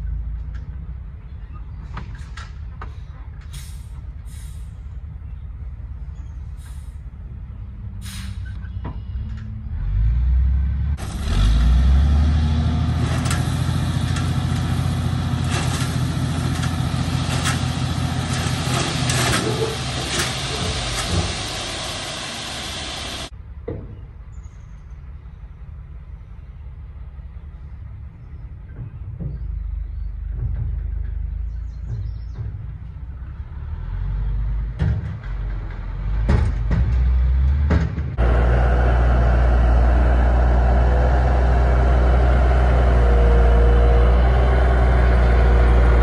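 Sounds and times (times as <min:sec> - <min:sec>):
heavy truck engine revving: 0:09.4 - 0:23.3, 0:33.3 - 0:46.0
loud rushing rattling noise: 0:13.0 - 0:23.3.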